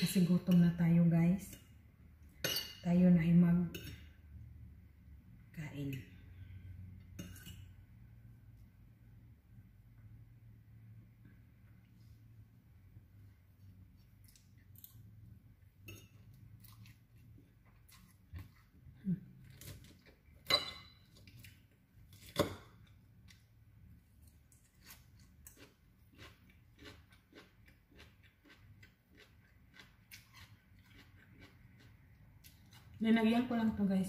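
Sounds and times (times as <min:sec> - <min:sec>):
chewing with crunching: 0:16.4 - 0:20.4, 0:24.2 - 0:33.0.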